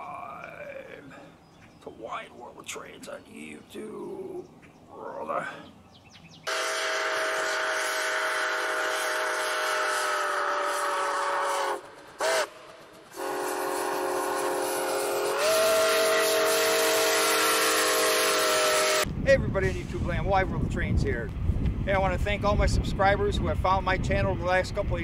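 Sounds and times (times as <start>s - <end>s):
steam locomotive chime whistle: 6.5s - 19.0s.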